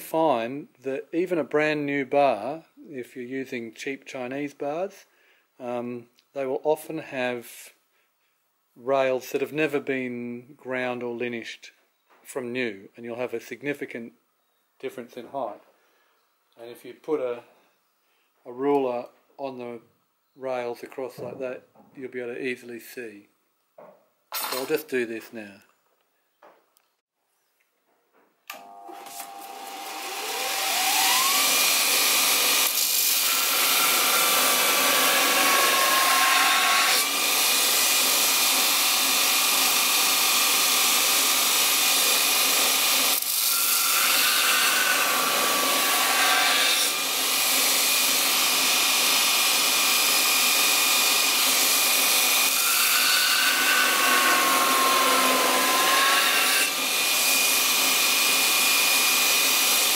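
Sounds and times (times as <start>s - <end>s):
bench grinder whining: 28.5s - 59.9s.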